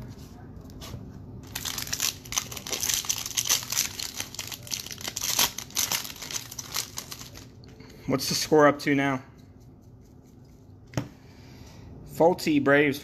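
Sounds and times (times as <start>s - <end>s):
foil wrapper crinkling and tearing: 1.4s - 7.6s.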